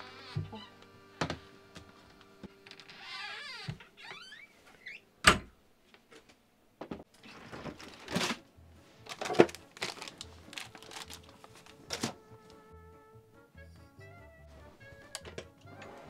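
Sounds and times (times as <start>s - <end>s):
rustling: 7.2s - 12.6s.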